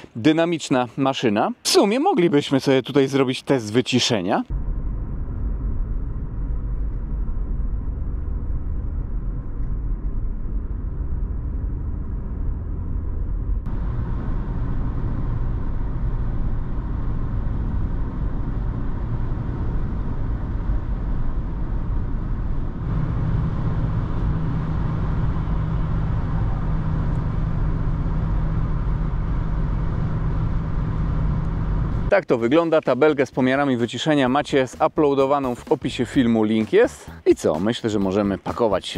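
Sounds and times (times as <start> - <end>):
car interior cabin drone: 4.5 - 32.2.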